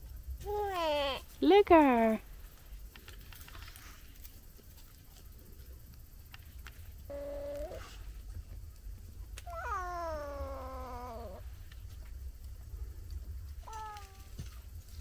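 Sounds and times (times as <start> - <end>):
cat meowing: 7.1 - 7.9, 9.4 - 11.4, 13.6 - 14.4.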